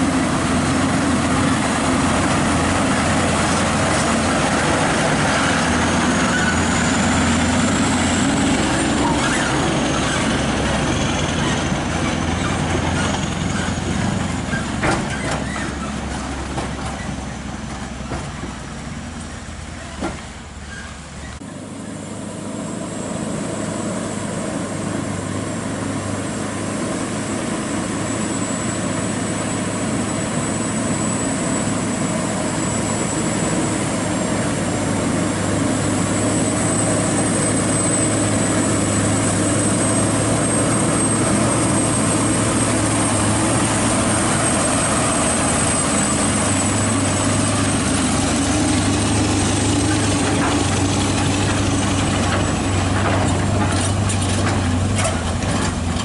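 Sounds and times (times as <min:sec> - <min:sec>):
truck engine at low revs: 0:00.0 - 0:56.0
clatters: 0:49.9 - 0:56.0.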